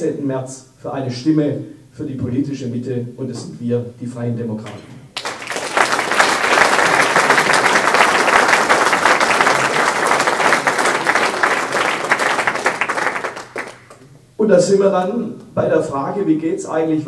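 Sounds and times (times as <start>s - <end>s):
audience applauding: 5.1s - 14.0s.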